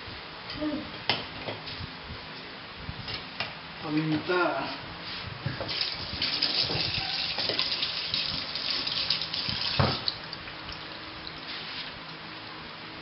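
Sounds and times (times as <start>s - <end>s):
tap water splashing into sink: 5.7s - 10.2s.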